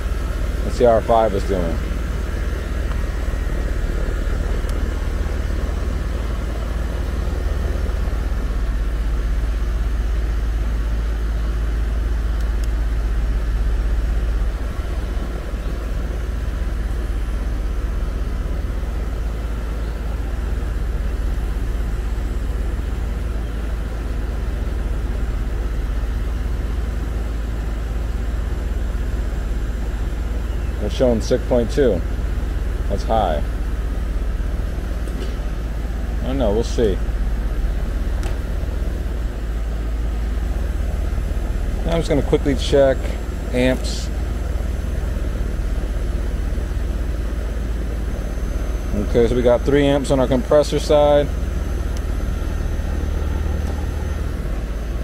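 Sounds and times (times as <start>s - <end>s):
fan airflow rush: 0.0s - 55.0s
heat pump humming: 0.0s - 55.0s.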